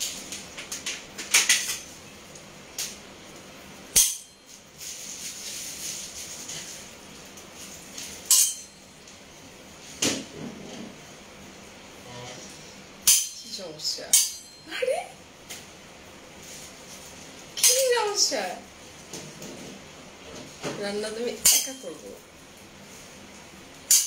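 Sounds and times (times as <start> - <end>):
metal spatulas clinking together: 4.0 - 4.4, 8.3 - 8.8, 13.1 - 13.5, 14.1 - 14.6, 21.4 - 22.1.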